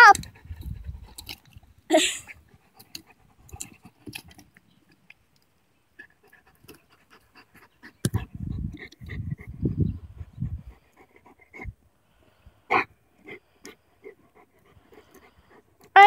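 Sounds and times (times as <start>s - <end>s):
dog panting: 0.0s - 4.4s, 6.0s - 16.0s.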